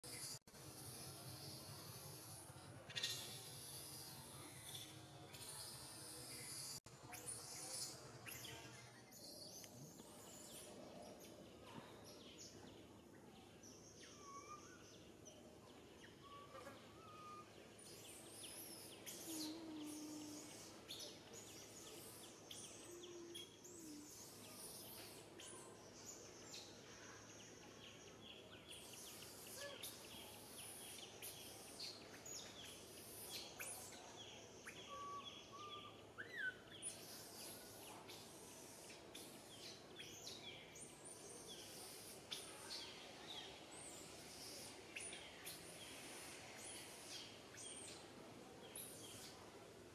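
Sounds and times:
bird chirps and calls: 13.4s - 27.1s, 27.8s - 45.6s.

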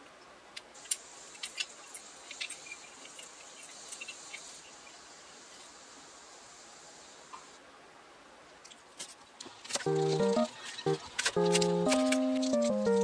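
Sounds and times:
faint high hiss: 0.0s - 8.9s.

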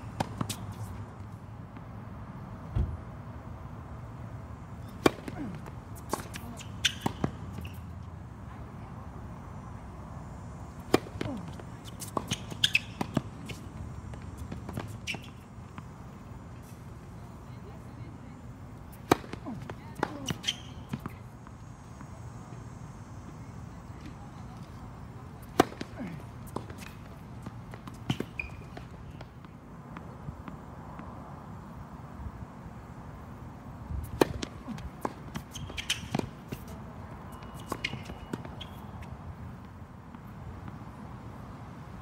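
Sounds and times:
tennis ball bouncing on court: 0.1s - 1.0s, 4.8s - 7.9s, 10.8s - 16.7s, 18.8s - 22.1s, 25.4s - 31.1s, 34.0s - 40.8s.

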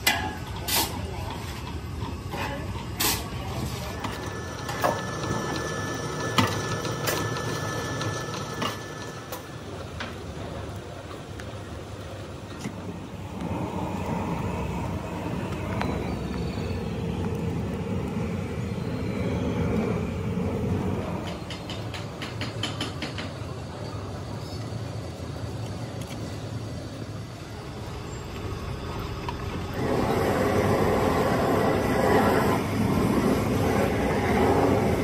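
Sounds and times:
thin steady whine: 0.0s - 35.0s
sand mixer running: 3.3s - 10.0s, 12.9s - 21.6s, 26.9s - 35.0s.

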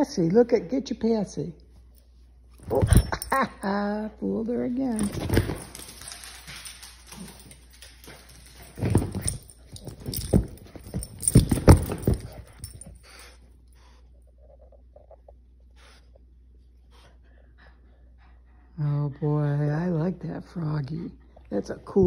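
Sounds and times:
dog paws thumping and scuffling: 2.5s - 3.5s, 4.7s - 13.0s.

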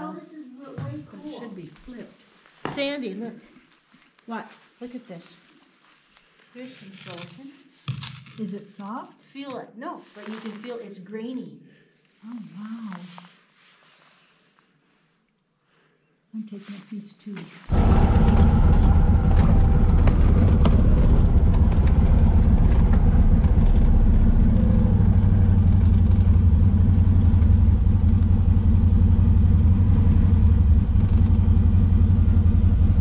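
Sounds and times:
engine low rumble: 17.7s - 33.0s.

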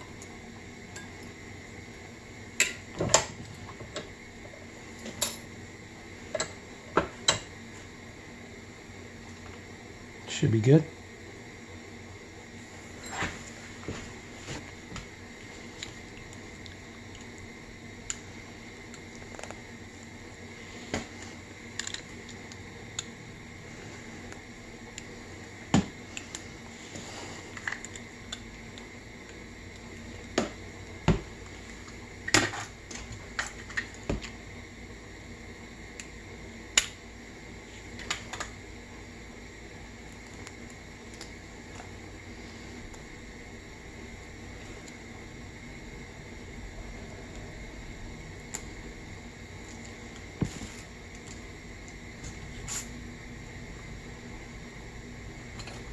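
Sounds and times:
steady background hum: 0.0s - 55.9s.

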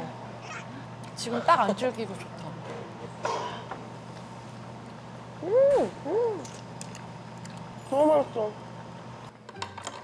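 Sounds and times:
woman humming while chewing: 5.4s - 6.5s.

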